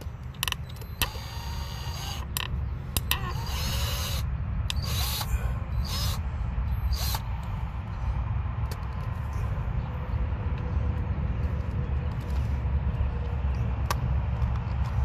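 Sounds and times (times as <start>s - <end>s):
steady low rumble: 0.0s - 15.0s
cordless drill whirring: 0.7s - 2.5s, 3.1s - 6.2s, 6.9s - 7.2s.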